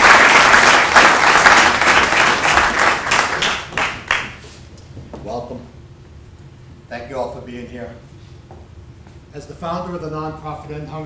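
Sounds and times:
audience applauding: 0.0s - 4.4s.

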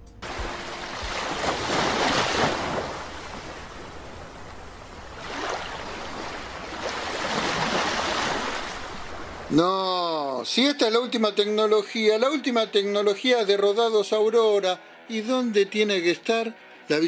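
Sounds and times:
surf-like rushing noise: 0.2s - 9.6s.

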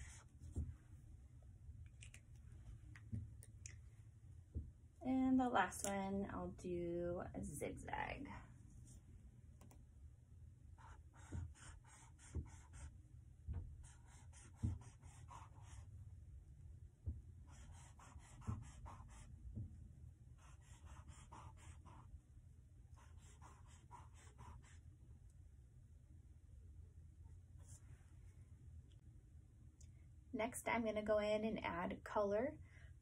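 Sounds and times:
marker scratching on paper: 0.0s - 0.7s, 10.8s - 12.9s, 13.8s - 15.9s, 17.5s - 19.3s, 20.4s - 22.1s, 23.0s - 24.8s.

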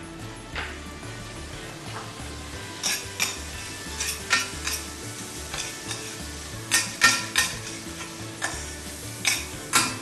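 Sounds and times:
onions sizzling in oil: 0.8s - 10.0s
metal spoon scraping a pan: 2.6s - 10.0s
spoon clinking against pan: 2.8s - 4.9s, 5.5s - 10.0s.

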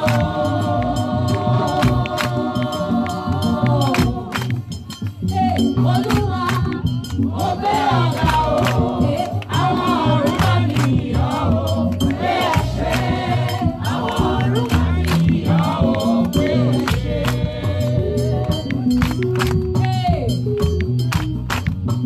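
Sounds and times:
voices singing along: 0.0s - 18.8s
bass accompaniment: 0.0s - 22.0s
rattling percussion: 0.0s - 22.0s.

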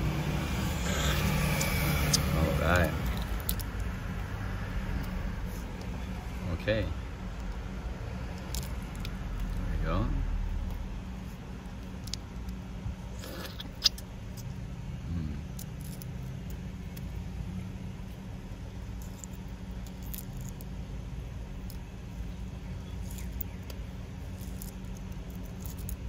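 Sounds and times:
egg shell clicks and crackles: 1.0s - 4.3s, 7.2s - 9.7s, 10.5s - 14.6s, 15.5s - 17.4s, 18.0s - 26.0s.

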